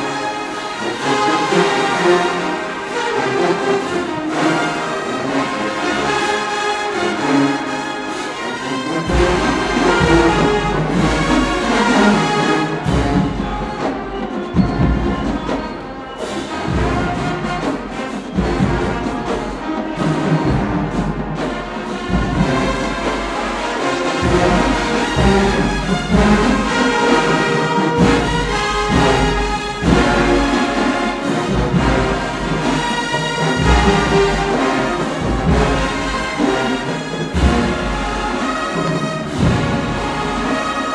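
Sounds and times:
brass section playing: 0:00.0 - 0:40.9
marching drums: 0:00.0 - 0:40.9.

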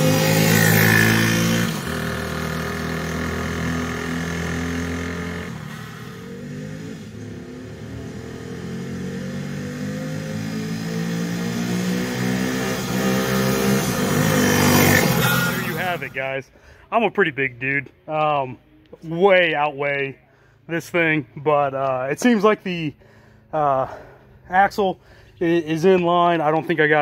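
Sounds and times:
atv engine revving: 0:00.0 - 0:16.2.

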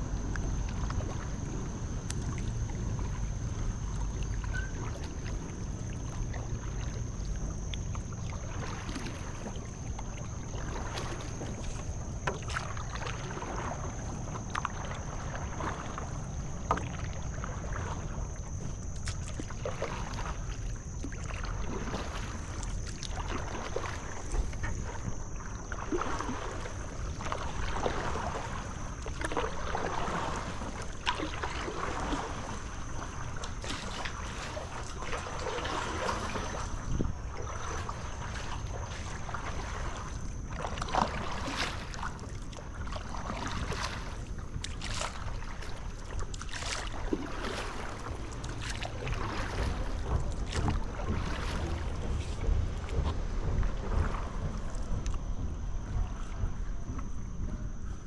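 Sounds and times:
paddle splashing in water: 0:00.0 - 0:58.0
wind rumble on microphone: 0:00.0 - 0:58.0.

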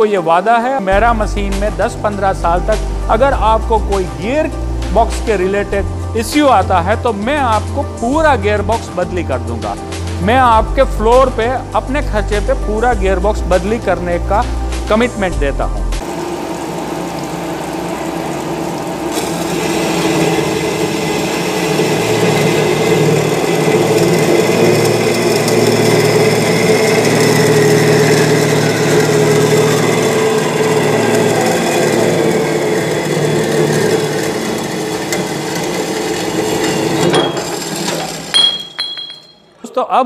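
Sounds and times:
band saw cutting pipe: 0:16.0 - 0:38.5.

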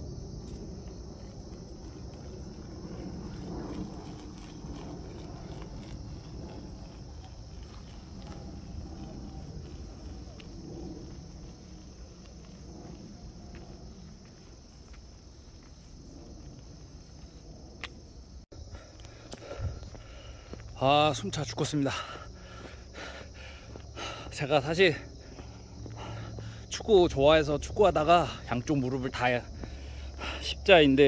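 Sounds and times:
low rumble: 0:00.0 - 0:21.3
high-pitched insect chorus: 0:00.0 - 0:31.0.

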